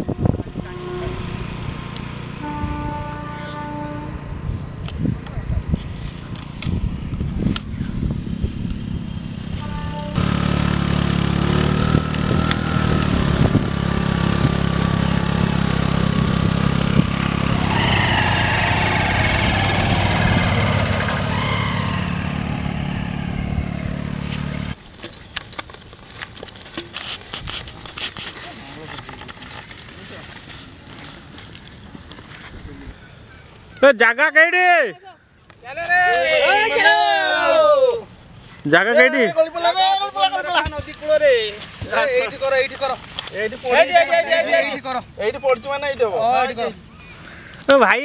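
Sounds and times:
motor scooter engine running: 6.0 - 24.8.

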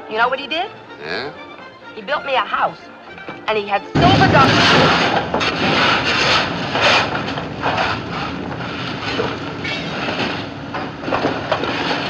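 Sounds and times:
boiler room machinery rumble: 3.9 - 12.0
coal shovels scraping: 4.0 - 10.5.

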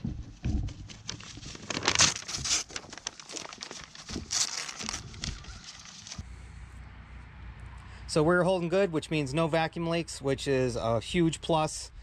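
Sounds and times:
paper crinkling and tearing: 0.8 - 6.2.

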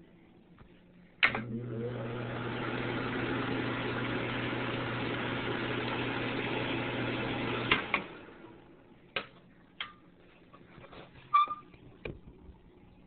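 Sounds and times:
exhaust fan running: 1.2 - 9.0.

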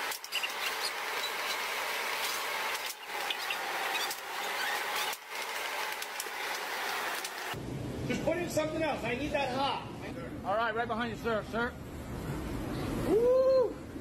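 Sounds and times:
kitchen hissing background: 0.0 - 7.6.

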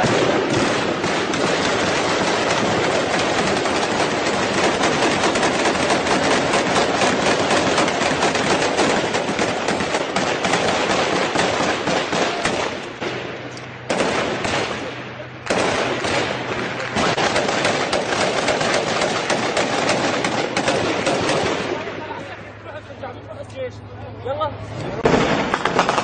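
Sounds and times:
automatic rifle fire: 0.0 - 21.9, 25.0 - 26.0.

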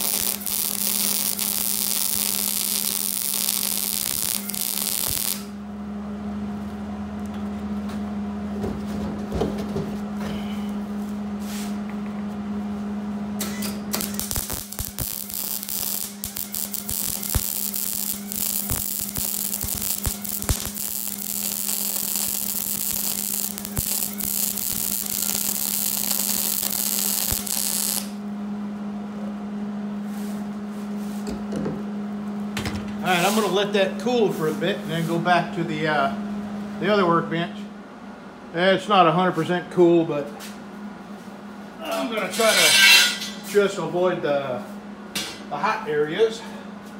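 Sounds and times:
welding arc crackling: 0.0 - 5.6, 13.4 - 28.2
steady electrical hum: 0.0 - 46.9.

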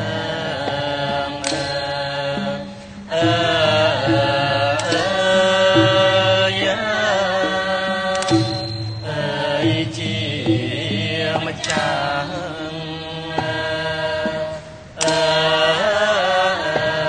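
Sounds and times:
chorus of men singing: 0.0 - 17.0
xylophone: 1.1 - 12.8.

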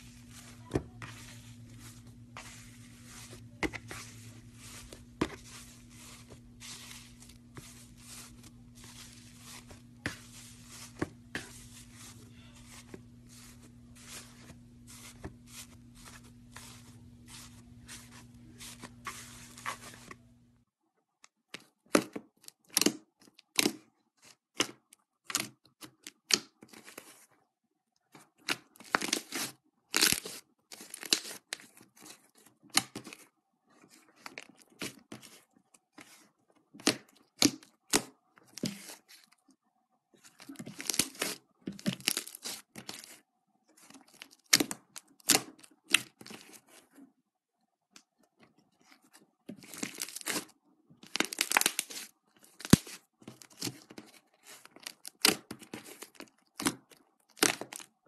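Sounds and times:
slime crackling and tearing: 40.7 - 43.2, 49.6 - 53.7, 54.6 - 57.9.

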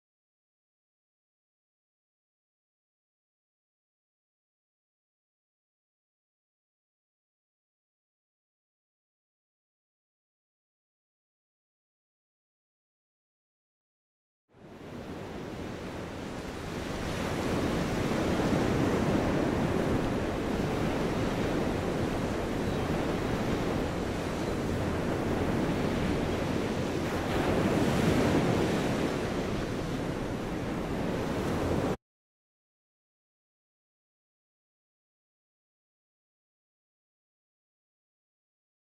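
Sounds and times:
ocean surf on sandy beach: 14.6 - 32.0.

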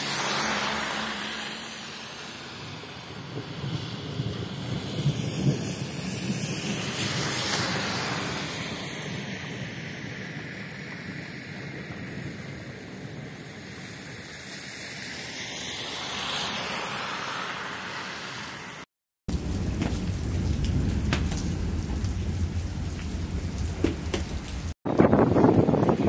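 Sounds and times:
tyres splashing through water: 0.0 - 2.9, 19.3 - 25.8
heavy rain on a wet street: 0.0 - 26.0
wind on microphone: 2.5 - 9.4, 19.5 - 26.0.

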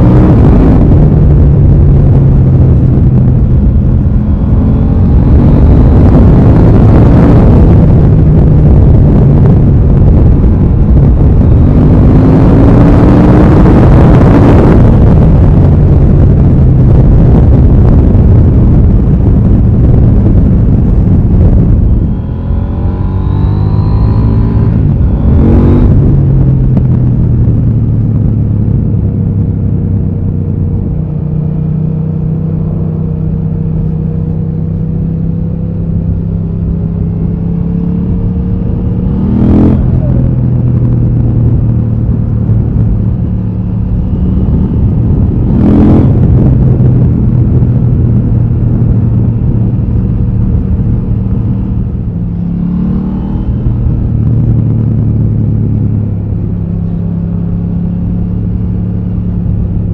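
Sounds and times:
motorcycle engine: 0.0 - 59.9
wind rush: 0.0 - 59.9.

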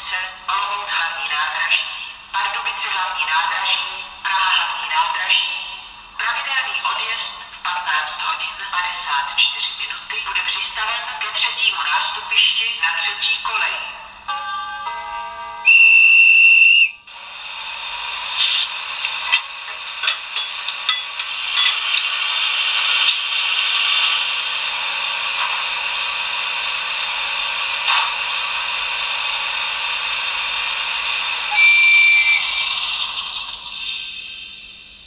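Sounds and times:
steady hiss: 16.4 - 35.0
locomotive horn from small speaker: 31.5 - 32.4.

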